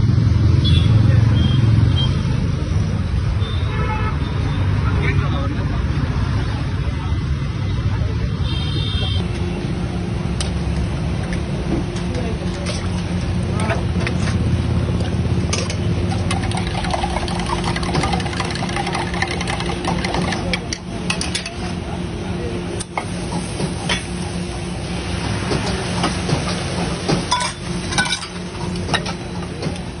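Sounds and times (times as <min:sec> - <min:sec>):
low mechanical hum: 0:09.2 - 0:30.0
ladle clinking against steel pots: 0:15.5 - 0:21.7, 0:27.3 - 0:29.2.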